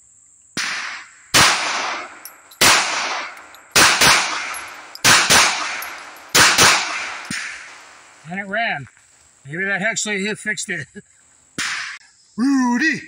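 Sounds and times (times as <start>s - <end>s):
pistol shots with echo: 1.4s - 7.9s.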